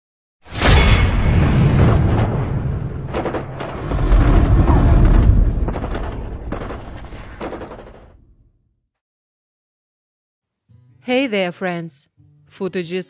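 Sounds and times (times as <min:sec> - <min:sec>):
explosion booms and rumble: 0:00.5 - 0:08.6
sharp cracks: 0:00.6 - 0:08.5.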